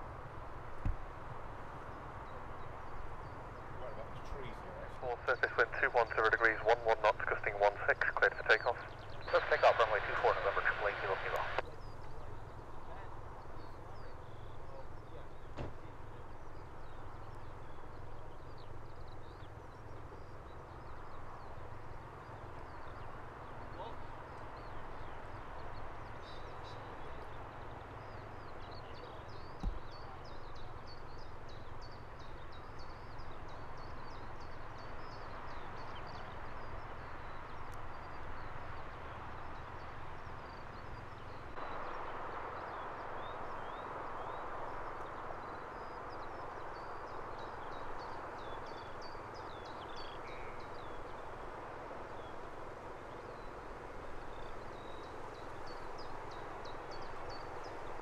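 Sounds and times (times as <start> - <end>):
distant jet engines whining: 0.0 - 58.0
songbirds chirping: 0.0 - 58.0.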